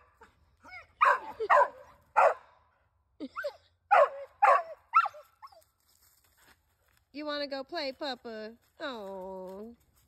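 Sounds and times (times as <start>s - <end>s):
young dog barking and yipping: 0.0s - 2.5s, 3.9s - 5.8s.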